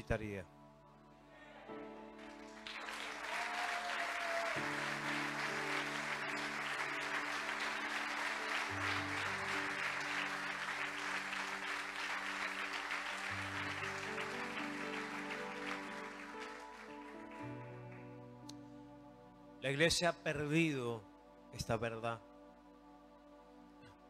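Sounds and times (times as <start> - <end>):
slow instrumental worship music: 0.0 - 24.0
congregation applauding: 2.1 - 18.9.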